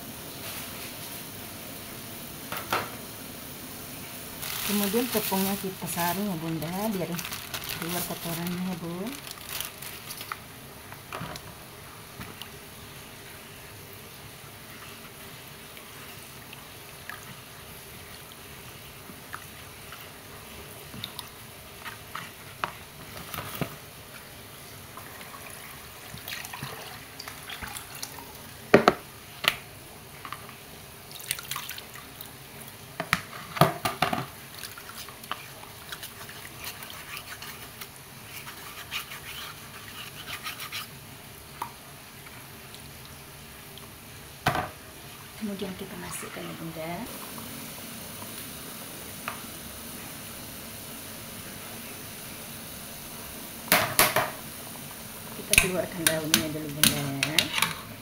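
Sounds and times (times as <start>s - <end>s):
liquid splashing and dripping: 31.1s - 32.3s.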